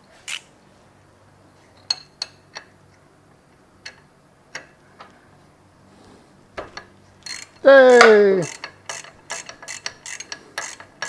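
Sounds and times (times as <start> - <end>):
sharp metallic clicks of hand tool: 6.8 - 11.0.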